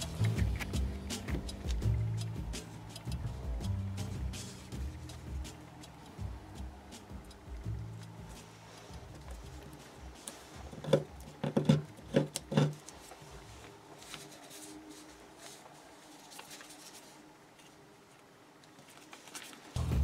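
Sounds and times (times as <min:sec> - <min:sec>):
paper crinkling and tapping: 0:04.8 - 0:19.8
faint paper rustling: 0:06.9 - 0:11.7, 0:12.6 - 0:19.8.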